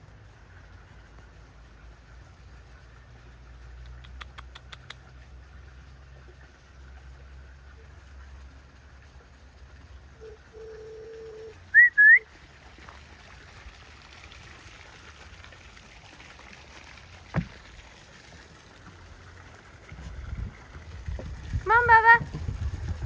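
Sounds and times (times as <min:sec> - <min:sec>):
faint steady hum: 0:04.9 - 0:22.4
person whistling: 0:11.2 - 0:12.2.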